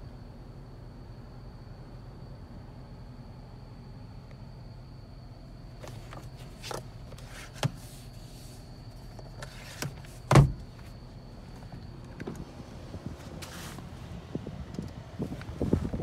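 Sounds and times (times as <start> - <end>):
low cabin hum: 0.0 - 16.0
sun visor thump: 9.8 - 10.8.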